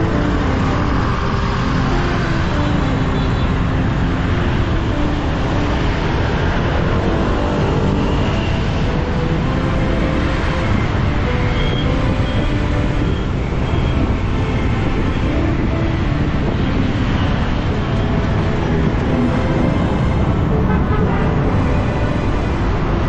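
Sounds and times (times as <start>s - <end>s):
motorbike engine and road noise: 0.0s - 23.0s
surrounding motorbike engines: 0.0s - 23.0s.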